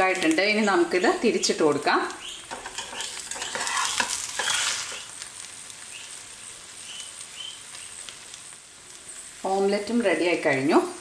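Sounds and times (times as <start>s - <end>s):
omelette sizzling in pan: 0.0s - 11.0s
metal spatula clicking and scraping: 2.5s - 5.0s.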